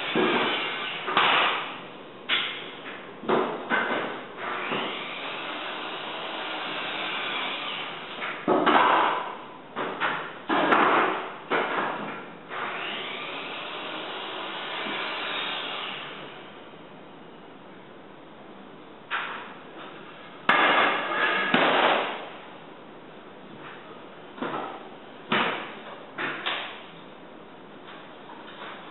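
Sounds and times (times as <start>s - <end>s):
wooden boards clattering and knocking: 8.4s - 12.3s.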